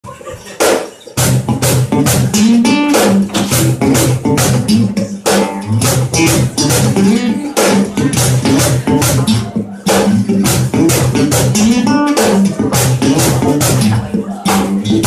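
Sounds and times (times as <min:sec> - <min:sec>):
acoustic guitar strumming: 0:01.2 - 0:15.0
low bass notes: 0:03.2 - 0:15.0.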